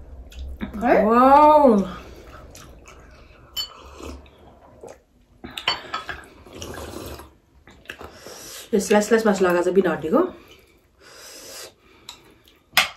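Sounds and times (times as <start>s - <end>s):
soup slurping: 2.2s - 5.1s, 6.3s - 8.4s
glassware clinking: 3.5s - 3.8s, 5.6s - 6.3s.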